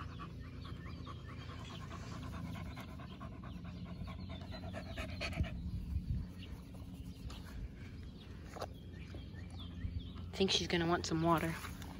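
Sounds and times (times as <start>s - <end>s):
puppy panting: 0.0s - 6.0s.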